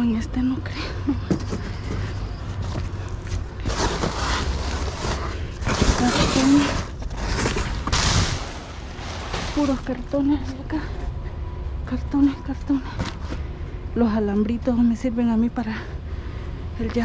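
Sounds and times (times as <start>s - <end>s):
steady low rumble: 0.0s - 17.0s
cardboard and plastic bags rustling: 1.3s - 10.8s.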